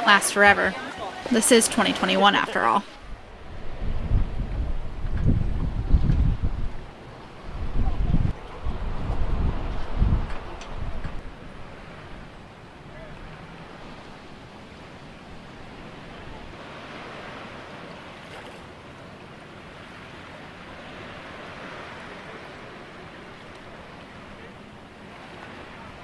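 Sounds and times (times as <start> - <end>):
wind on microphone: 2.8 - 17.7.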